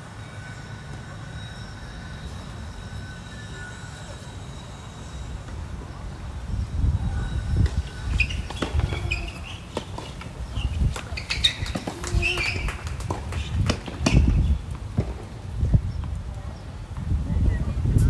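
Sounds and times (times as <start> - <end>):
shoe squeaks on court: 7.8 - 14.4
tennis ball bouncing: 8.2 - 14.3
racket striking tennis ball: 8.2 - 14.4.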